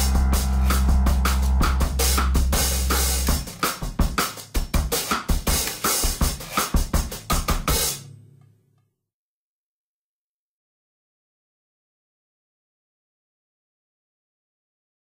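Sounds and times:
background music with drum beat: 0.0s - 8.0s.

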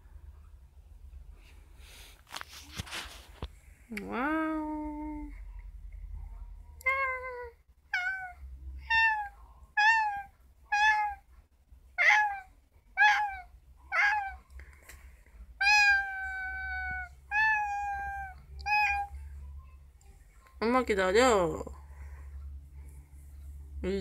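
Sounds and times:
cat meowing: 6.9s - 11.3s, 12.0s - 14.4s, 15.6s - 19.1s.

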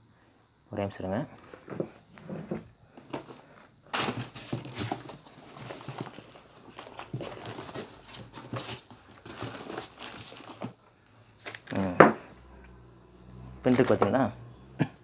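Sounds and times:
plastic packaging crinkling: 3.9s - 10.8s, 11.4s - 12.0s, 13.7s - 14.1s.

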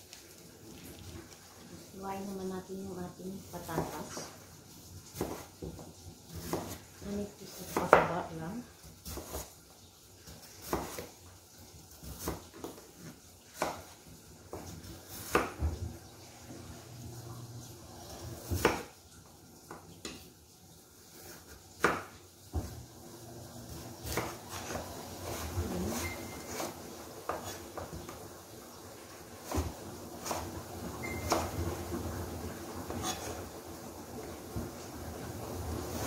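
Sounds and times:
knife slicing potato on board: 5.0s - 9.6s, 10.2s - 11.2s, 11.9s - 15.8s, 18.2s - 18.9s, 21.2s - 22.8s, 23.6s - 28.3s, 29.3s - 31.7s, 32.7s - 33.6s.

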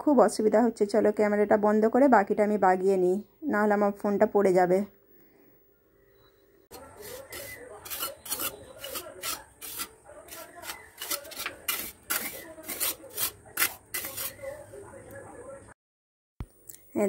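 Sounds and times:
trowel scraping wet mortar: 6.7s - 14.6s.

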